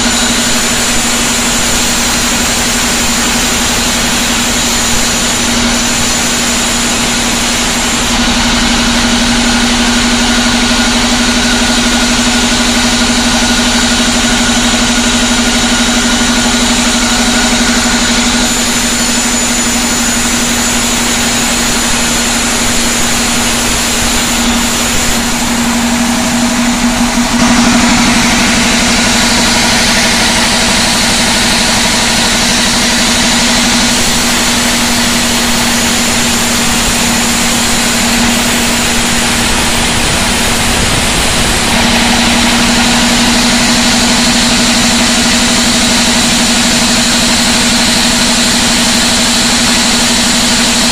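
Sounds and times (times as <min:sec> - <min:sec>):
saw blade cutting log hiss: 0:00.0 - 0:09.1, 0:18.0 - 0:43.0
band sawmill humming: 0:00.0 - 0:50.9.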